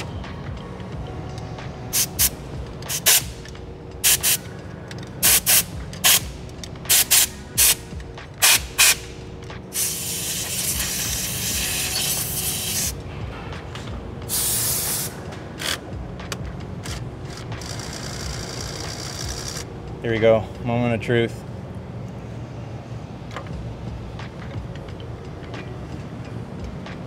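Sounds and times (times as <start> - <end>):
compressed air blow gun hissing: 2.0 - 3.4, 4.0 - 4.5, 9.7 - 12.9, 14.3 - 15.2.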